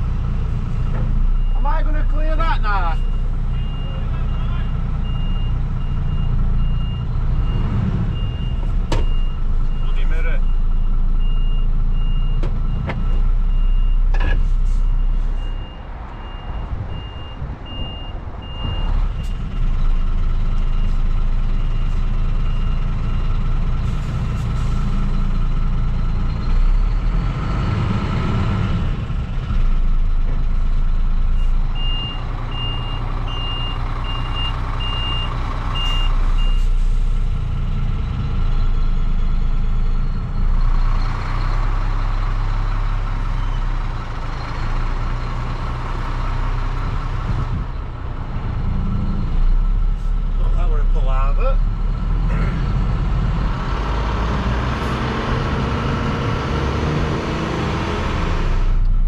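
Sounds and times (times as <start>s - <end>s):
truck diesel engine running: 0.0s - 59.0s
reversing alarm beeping: 1.3s - 14.2s, 14.8s - 24.0s, 31.2s - 36.9s.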